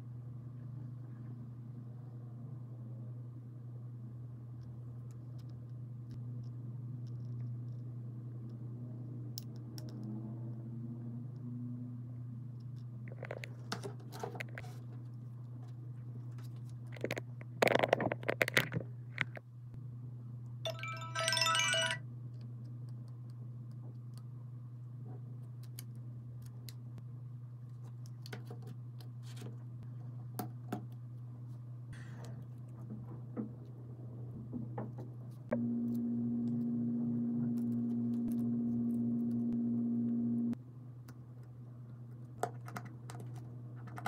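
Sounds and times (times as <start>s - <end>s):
clicks and crinkling of small parts: 16.3s - 19.4s
short electronic chime: 20.7s - 22.0s
steady low hum: 33.6s - 42.4s.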